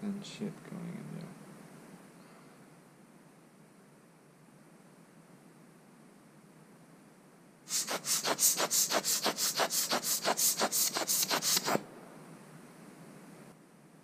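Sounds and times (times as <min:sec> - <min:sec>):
air blower puffs: 0:07.7 - 0:11.9.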